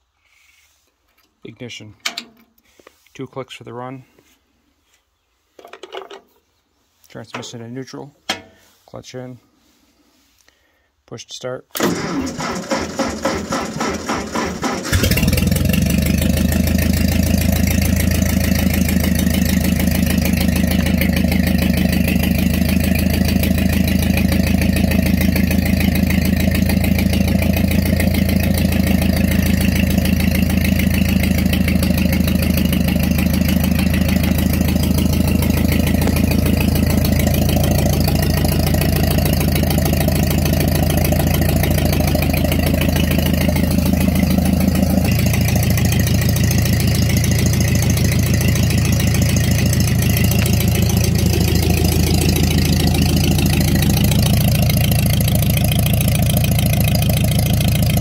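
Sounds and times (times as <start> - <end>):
tractor engine idling: 11.8 - 58.0.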